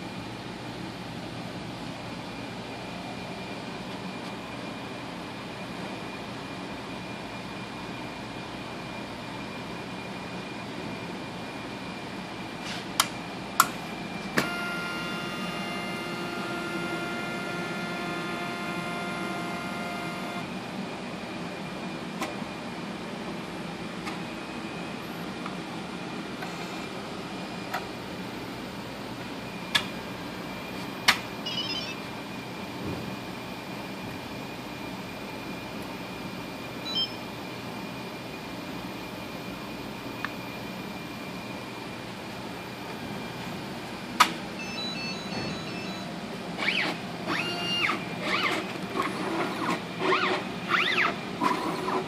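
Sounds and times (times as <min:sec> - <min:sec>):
robotic arm motors whining: 0:46.6 - 0:52.0.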